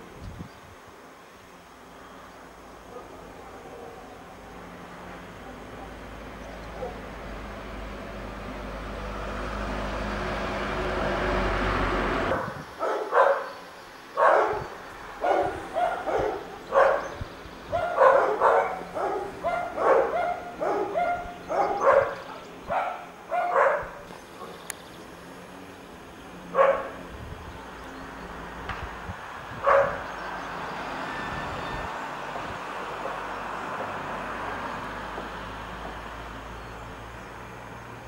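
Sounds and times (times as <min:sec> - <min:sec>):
dog barking: 0:02.9 - 0:04.0, 0:06.7 - 0:07.1, 0:12.3 - 0:13.6, 0:14.2 - 0:24.6, 0:26.5 - 0:27.0, 0:29.6 - 0:30.0.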